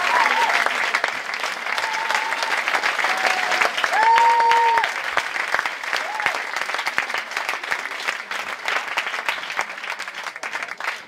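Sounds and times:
audience applauding: 0.0 - 11.0
person cheering high-pitched: 3.1 - 4.9.

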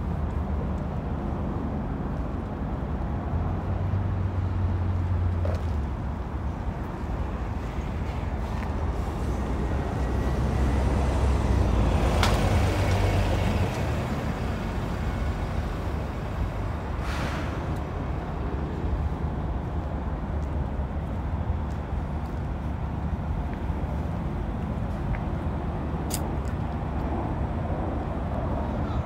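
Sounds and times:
city street traffic: 0.0 - 29.0
short hiss: 17.0 - 17.8
sharp click: 26.1 - 26.6.

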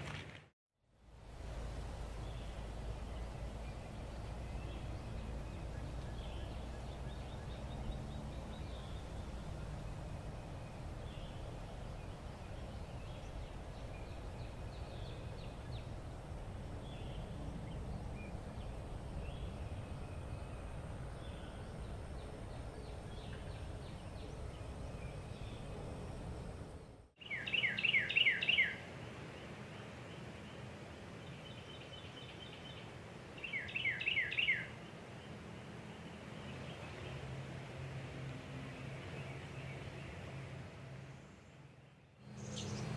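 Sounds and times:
low steady rumble: 1.0 - 27.1.

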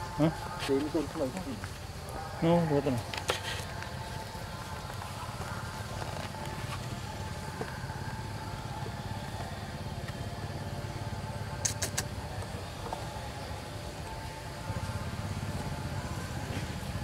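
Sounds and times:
sharp clicks: 11.6 - 12.1.

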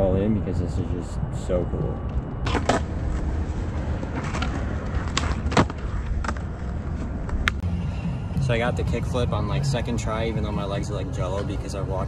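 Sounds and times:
skateboard wheels rolling: 2.4 - 7.6.

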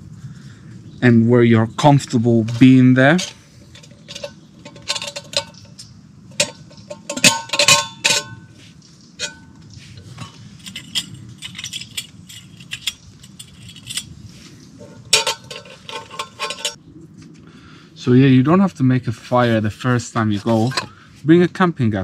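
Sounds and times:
metal pot and lid clinking: 2.4 - 8.6, 9.2 - 14.1, 14.8 - 16.8.

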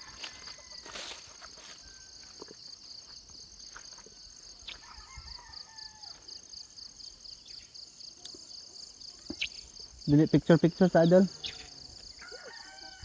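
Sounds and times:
distant rooster crowing: 0.0 - 2.4, 4.7 - 6.8, 12.1 - 13.0
insects trilling: 0.0 - 13.0.

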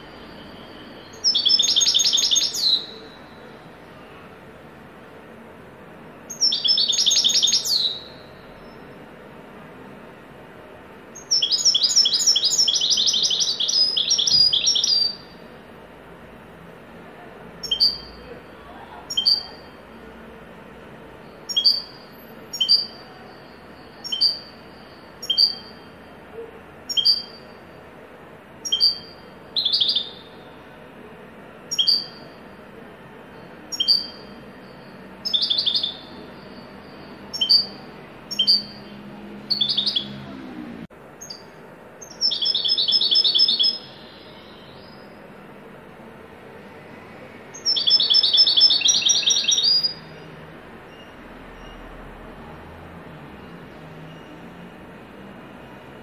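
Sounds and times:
goldfinch chirps and trills: 0.3 - 3.1, 6.3 - 8.8, 11.2 - 15.3, 17.6 - 18.2, 19.1 - 19.7, 21.4 - 23.0, 24.0 - 24.5, 25.2 - 25.8, 26.9 - 27.5, 28.6 - 30.3, 31.7 - 32.2, 33.7 - 36.7, 37.3 - 38.9, 39.5 - 40.2, 41.2 - 45.1, 47.6 - 50.0.

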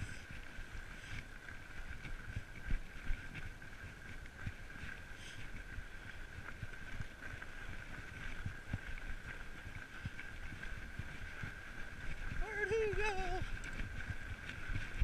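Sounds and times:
bike rolling over snow: 0.0 - 15.0.

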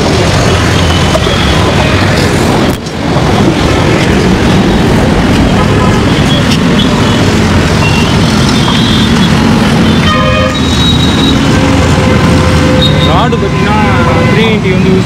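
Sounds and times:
vehicle engines droning: 0.0 - 15.0
car horn honking: 7.8 - 14.8.

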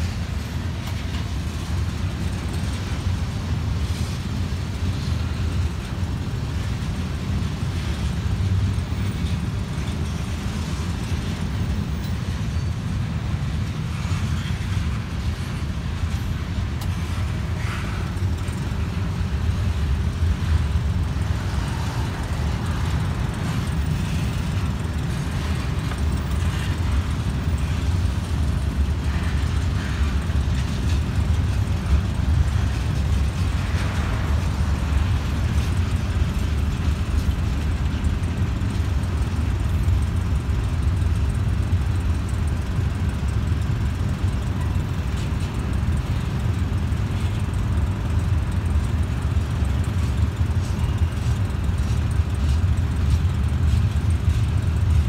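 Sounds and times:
freight train rumbling past: 0.0 - 55.0.

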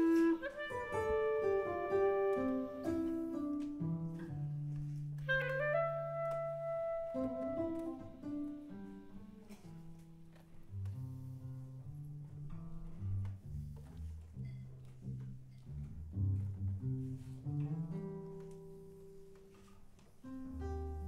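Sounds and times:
clarinet: 0.0 - 10.1
guitar: 0.0 - 21.0.

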